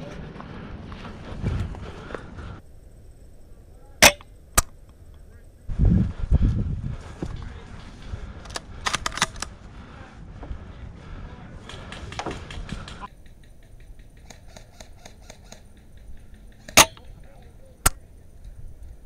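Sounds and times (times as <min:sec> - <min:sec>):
loud sharp rifle shot: 0:04.0 - 0:04.2
airsoft guns snapping: 0:08.4 - 0:09.5.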